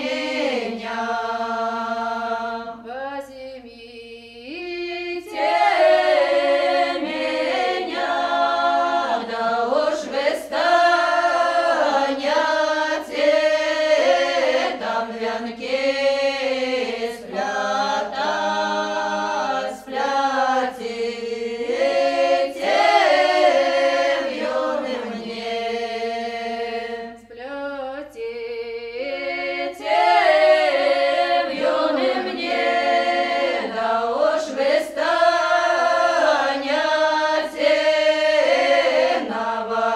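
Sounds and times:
choir singing in harmony: 0.0 - 39.9.

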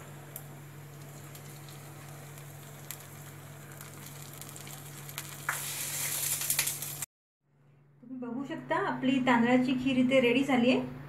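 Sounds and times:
low steady hum: 0.0 - 5.5
hot oil and nuts sizzling: 0.0 - 7.1.

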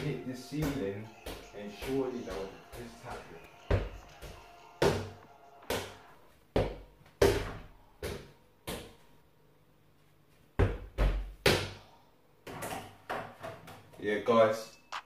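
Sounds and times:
football bouncing on hard floor: 0.6 - 9.0, 10.6 - 11.8.

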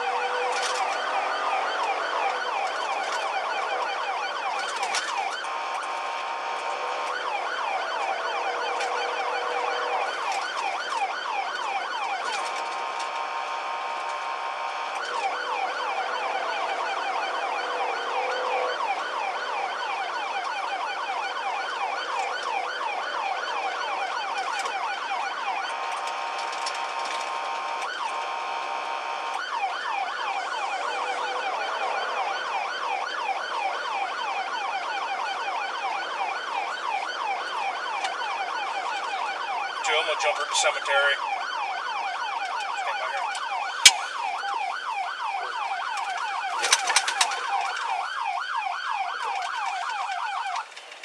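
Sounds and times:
police siren yelping: 0.0 - 51.0.

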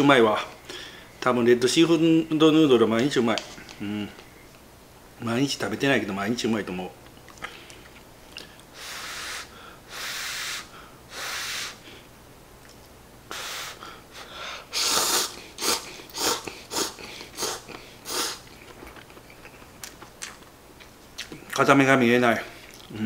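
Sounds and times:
man blowing on food: 8.7 - 12.0, 13.3 - 18.5
slurping noodles: 14.8 - 18.4.

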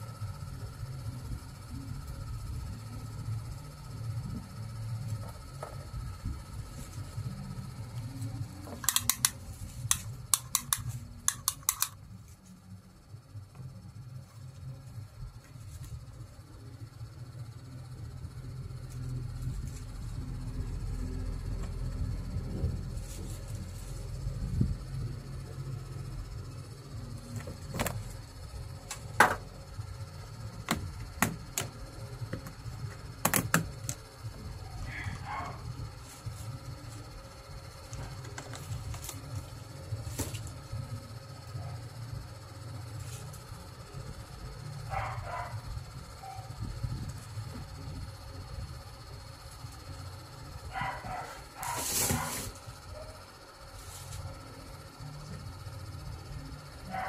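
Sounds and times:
low steady hum: 0.0 - 57.0
sharp clicks: 8.8 - 12.0.

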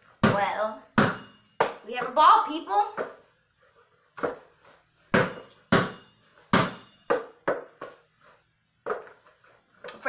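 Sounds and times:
basketball bouncing: 0.2 - 3.2, 5.1 - 8.1.

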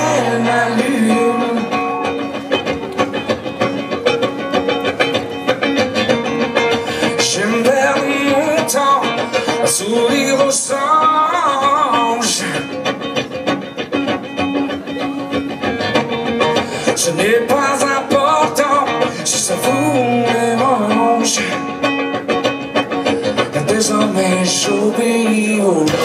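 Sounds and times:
man singing into microphone: 0.0 - 2.5, 6.8 - 12.9, 16.7 - 22.0, 23.1 - 26.0
acoustic guitar: 0.0 - 26.0.

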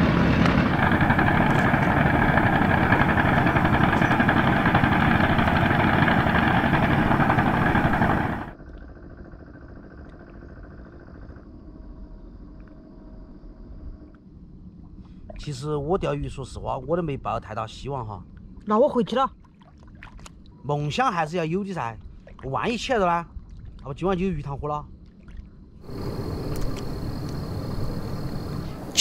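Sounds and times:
motor engine running loudly: 0.0 - 8.6, 25.8 - 29.0
faint steady hum: 24.8 - 29.0.

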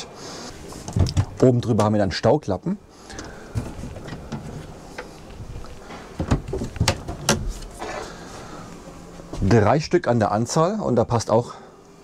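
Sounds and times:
flap hinges clicking and knocking: 6.2 - 7.7.

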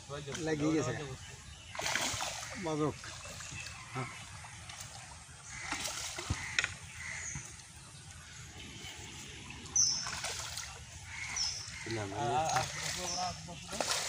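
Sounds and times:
fish splashing in water: 1.6 - 7.5, 9.2 - 14.0.

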